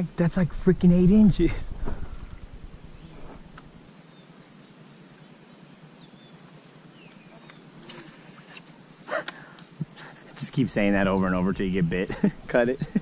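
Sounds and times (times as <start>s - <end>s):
high-pitched insect drone: 0.0s - 13.0s
bird chirps: 5.9s - 9.5s.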